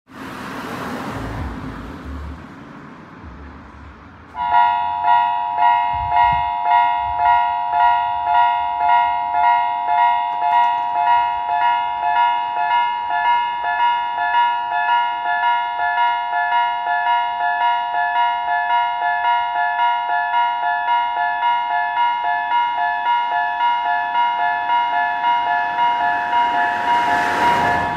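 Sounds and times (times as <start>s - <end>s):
level crossing warning bell: 4.4s - 27.9s
rushing noise: 25.1s - 27.9s.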